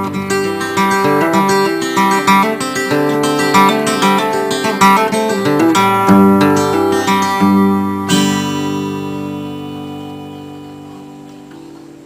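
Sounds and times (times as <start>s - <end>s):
acoustic guitar: 0.0s - 12.0s.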